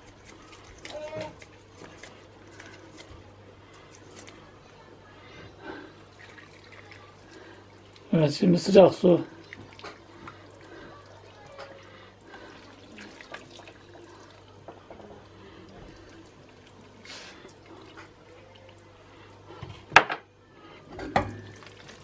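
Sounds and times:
water pouring into a pan: 0:06.0 - 0:14.5, 0:21.2 - 0:22.0.

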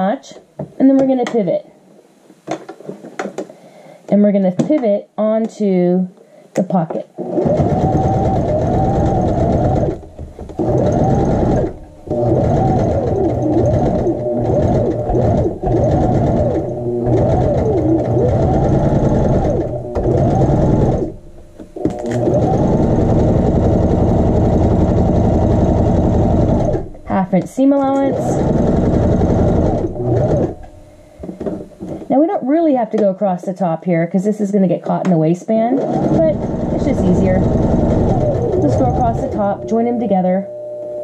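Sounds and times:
sewing machine stitching: 0:07.2 - 0:21.2, 0:21.8 - 0:30.7, 0:35.6 - 0:40.1.

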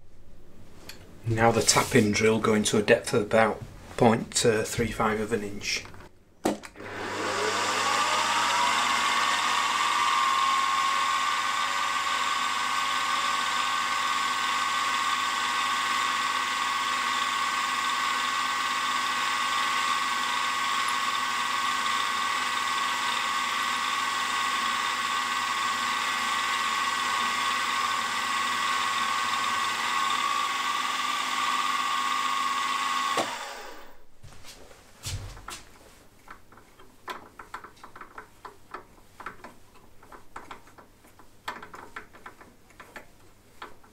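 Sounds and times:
drill boring into metal: 0:06.8 - 0:33.9
milling machine spindle whining: 0:06.8 - 0:33.9.

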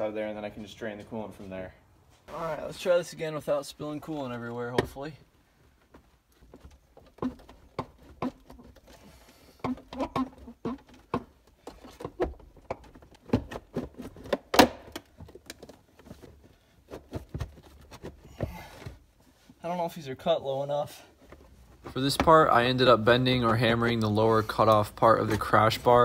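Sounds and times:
plastic knocks clicks and creaks: 0:06.3 - 0:09.0, 0:09.6 - 0:16.3, 0:21.3 - 0:24.1.

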